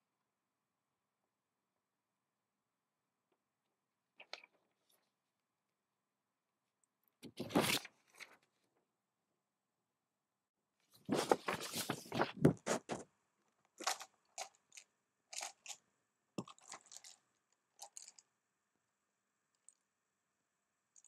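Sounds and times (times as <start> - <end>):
crunchy paper rustling: 7.3 - 8.3, 11.0 - 13.0, 13.8 - 15.8.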